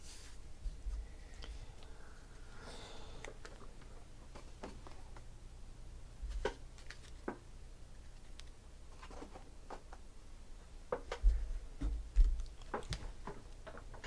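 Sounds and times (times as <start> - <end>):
cards clicking and tapping: 6.4 - 7.4, 12.2 - 14.0.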